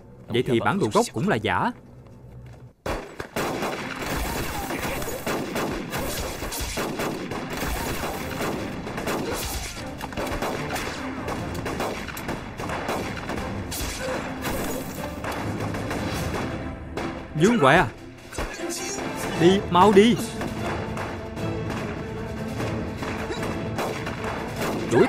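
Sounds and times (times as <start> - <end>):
rifle and machine-gun fire: 2.9 - 16.6.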